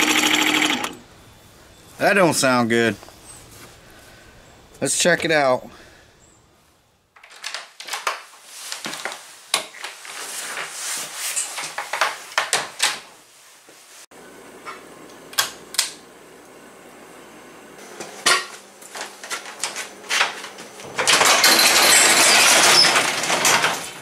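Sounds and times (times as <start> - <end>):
hard objects clicking and clattering: 20.8 - 24.0.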